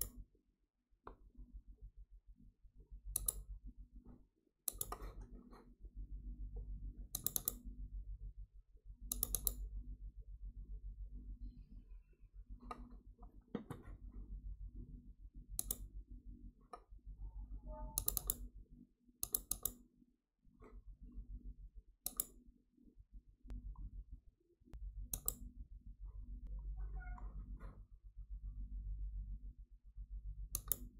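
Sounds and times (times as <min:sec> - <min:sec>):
computer mouse clicking: 0:03.1 - 0:03.5, 0:04.7 - 0:05.6, 0:07.1 - 0:07.7, 0:09.1 - 0:09.6, 0:15.5 - 0:15.9, 0:17.9 - 0:18.5, 0:19.2 - 0:19.8, 0:22.0 - 0:22.4, 0:25.1 - 0:25.5, 0:30.5 - 0:30.9
low steady hum: 0:04.8 - 0:19.7, 0:20.5 - 0:30.9.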